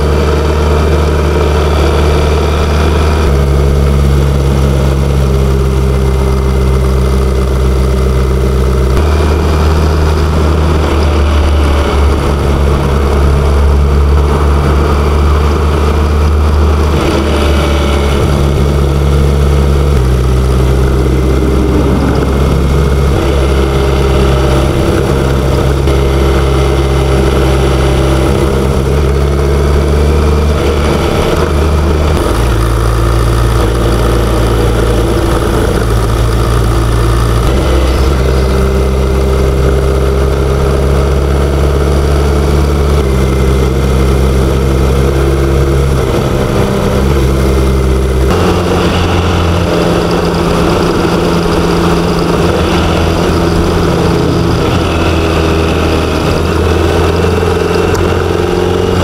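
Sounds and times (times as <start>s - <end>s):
motorcycle engine running: 0.0s - 59.0s
wind and road noise: 0.0s - 59.0s.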